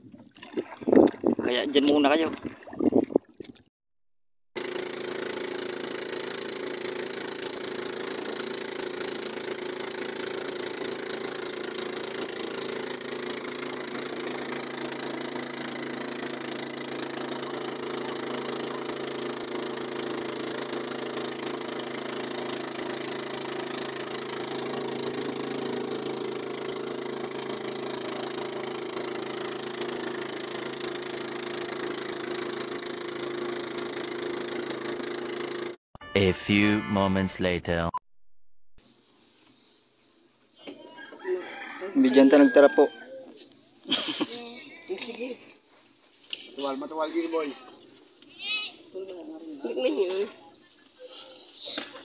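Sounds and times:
boat engine droning: 4.6 - 35.8.

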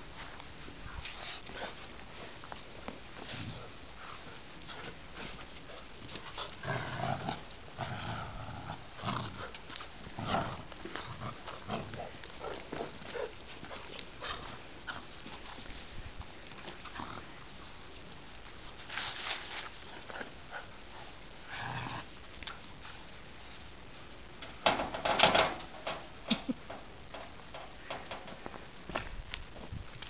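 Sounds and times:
scuffling and tugging: 0.1 - 24.2
puppies growling: 3.4 - 15.2.

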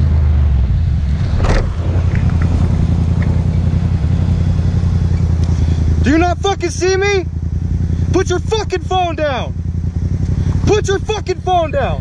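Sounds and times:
motorcycle engine running: 0.0 - 12.0
brief rushing noise: 1.2 - 3.7.

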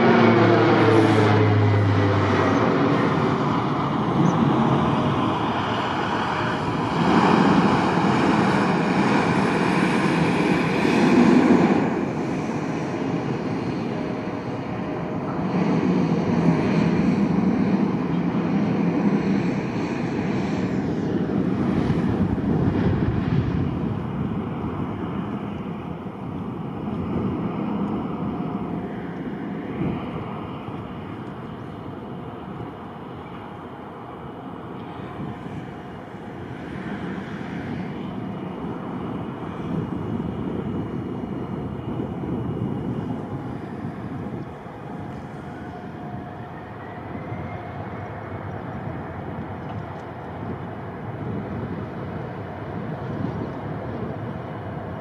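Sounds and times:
aircraft engines roaring past: 0.0 - 55.0.

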